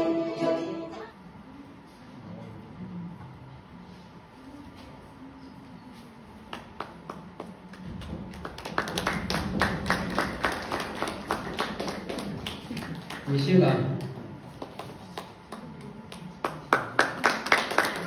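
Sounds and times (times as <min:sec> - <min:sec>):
audience clapping: 0:06.4 - 0:18.0.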